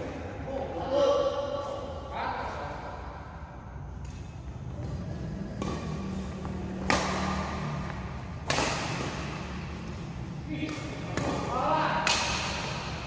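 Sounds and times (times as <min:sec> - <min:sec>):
steady low hum: 0:00.0 - 0:13.0
racket hitting shuttlecock: 0:04.0 - 0:13.0.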